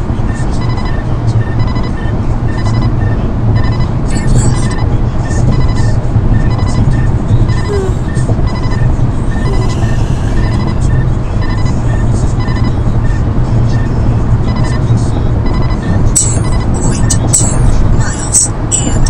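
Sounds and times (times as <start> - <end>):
road and engine noise: 0.0 - 19.0
radar detector alert beeps: 0.6 - 13.2, 14.5 - 17.6.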